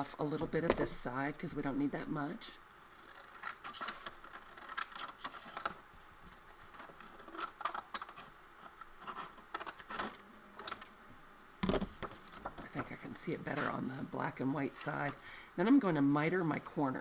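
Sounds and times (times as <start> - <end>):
scissors cutting paper: 2.9 - 5.7.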